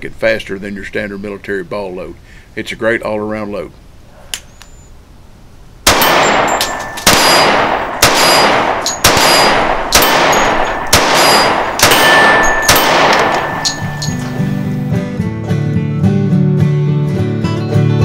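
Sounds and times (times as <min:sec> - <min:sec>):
pistol shots echoing: 0:05.9 - 0:14.9.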